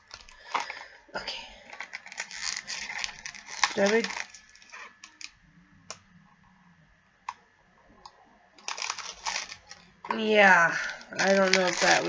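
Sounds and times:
cardboard package crinkling: 1.6s - 5.4s, 8.6s - 12.0s
cardboard package clicks: 8.6s - 9.8s.

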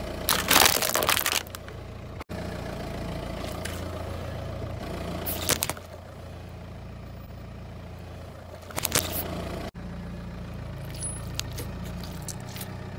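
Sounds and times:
car engine idling: 0.0s - 12.9s
tyre crushing grit: 0.3s - 1.6s.

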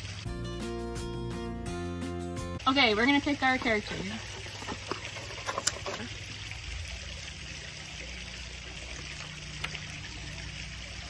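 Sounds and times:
paper slips rustling and clicking: 3.6s - 6.1s.

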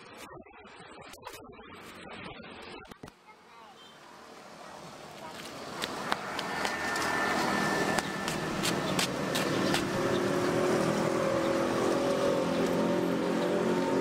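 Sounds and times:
vehicle engine running: 4.8s - 14.0s.

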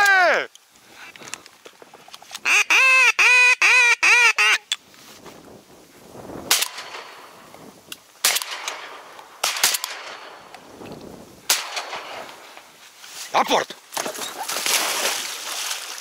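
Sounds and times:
shotgun shots: 6.5s - 7.1s, 8.2s - 10.5s, 11.5s - 12.3s.

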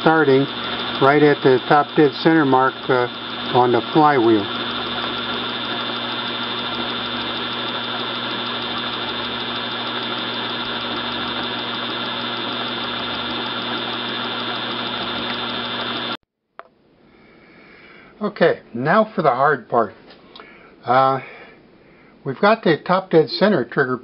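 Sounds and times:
treadmill motor whirring: 0.0s - 16.2s.

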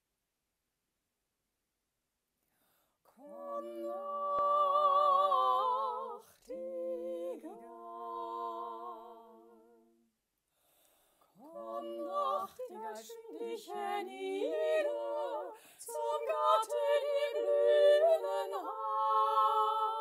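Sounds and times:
woman singing a cappella: 3.1s - 10.0s, 11.4s - 20.0s.

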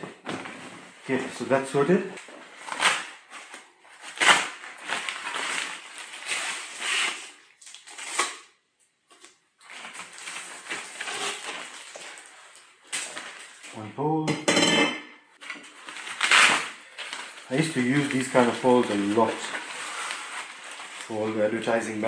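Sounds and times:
nylon bag rustling and crinkling: 0.3s - 7.6s, 9.6s - 13.9s, 15.6s - 22.0s
pole pulled from bag: 15.8s - 21.3s.

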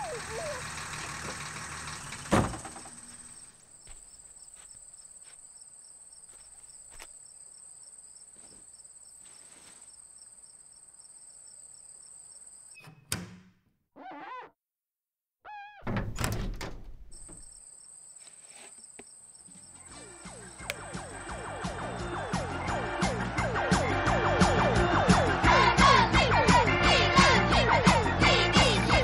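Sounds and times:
crickets chirping: 0.0s - 12.8s, 17.1s - 22.6s
loud thump: 2.3s - 2.8s.

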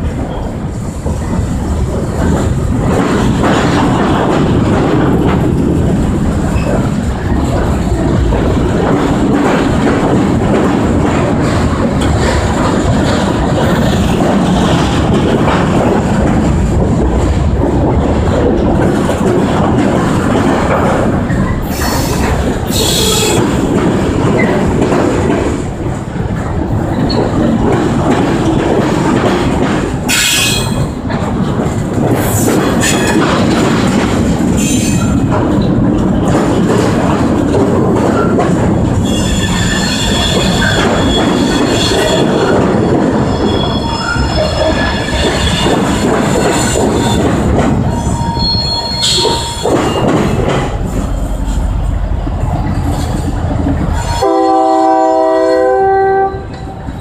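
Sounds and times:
train wheels rumbling on rails: 0.0s - 57.0s
sustained wheel squeal: 48.0s - 49.6s.

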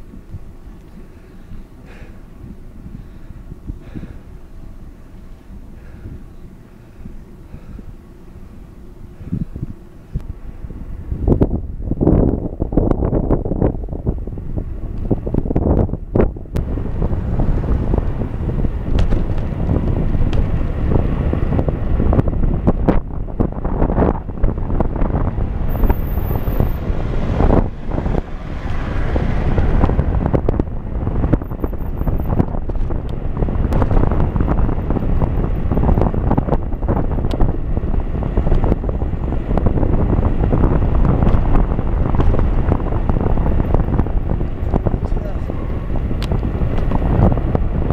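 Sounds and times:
wind buffeting microphone: 0.0s - 47.9s.

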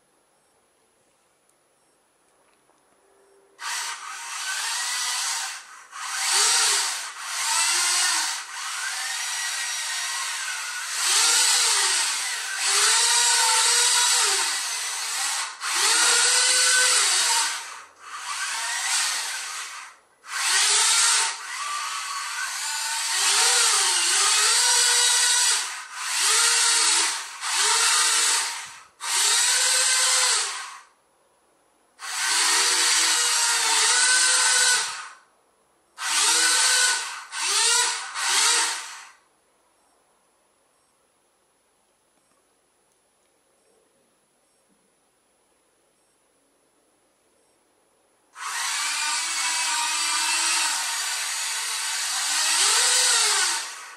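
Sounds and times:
small electric motors whining: 3.6s - 30.9s, 32.0s - 35.2s, 36.0s - 39.2s, 48.4s - 53.9s.

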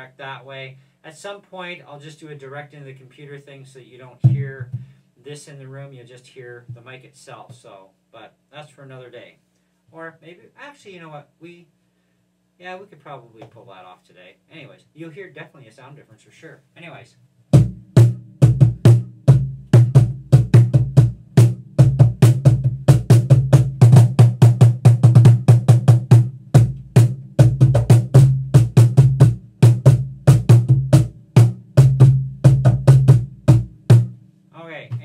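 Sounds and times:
cajon bass thumps and slaps: 4.2s - 4.9s, 17.6s - 34.2s.

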